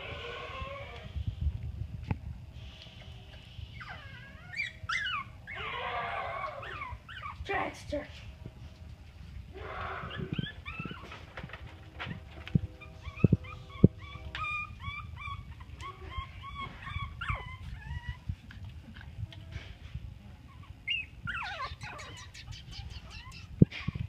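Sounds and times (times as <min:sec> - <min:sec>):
puppies whimpering and squeaking: 0:00.0 - 0:01.1, 0:03.0 - 0:08.0, 0:09.6 - 0:19.0, 0:20.4 - 0:24.0.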